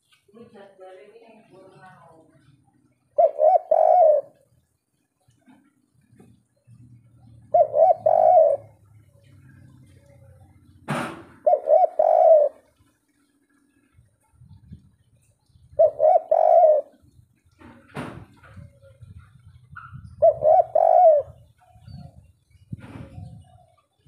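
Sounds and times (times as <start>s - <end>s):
dove cooing: 3.1s - 4.5s, 7.0s - 12.7s, 15.6s - 17.2s, 18.5s - 24.0s
short sharp knock: 10.9s - 11.4s.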